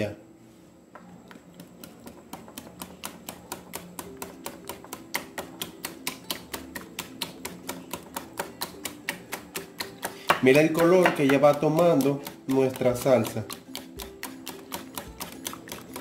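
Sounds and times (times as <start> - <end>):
wire whisk clicking against glass bowl: 4.6 - 16.0.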